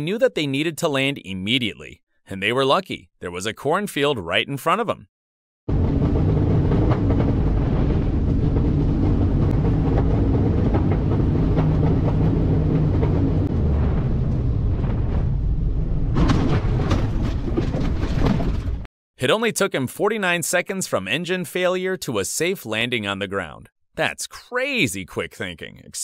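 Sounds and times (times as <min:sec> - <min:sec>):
wind noise: 0:05.7 - 0:18.9.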